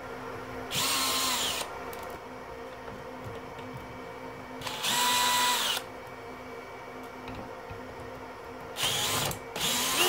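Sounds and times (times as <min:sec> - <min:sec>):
cordless drill whine: 0:00.7 - 0:01.7, 0:04.6 - 0:05.9, 0:08.8 - 0:10.0.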